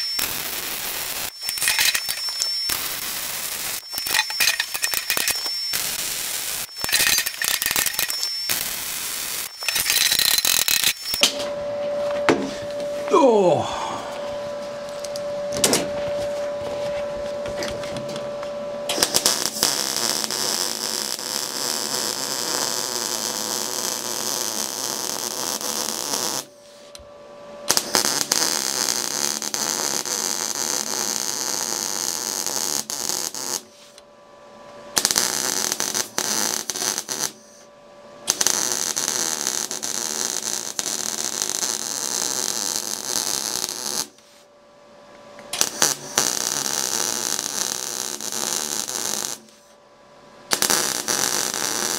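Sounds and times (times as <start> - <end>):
welding arc crackling: 0.0 - 11.4, 18.9 - 26.5, 27.7 - 34.0, 34.9 - 44.2, 45.4 - 49.7, 50.5 - 51.9.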